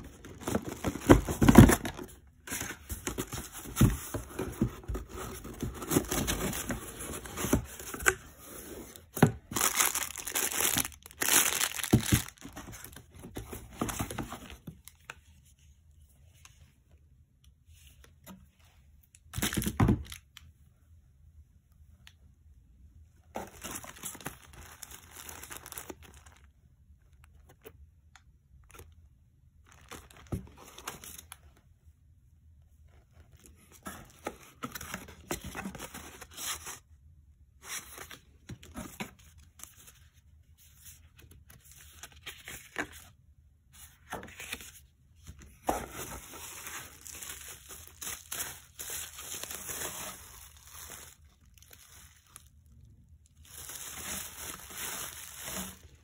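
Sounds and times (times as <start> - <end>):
packaging crinkling: 9.4 - 13.0, 23.4 - 26.5, 46.2 - 56.0.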